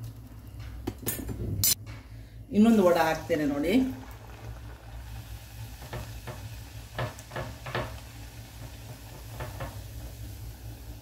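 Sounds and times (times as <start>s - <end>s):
deep-frying sizzle: 2.6s - 11.0s.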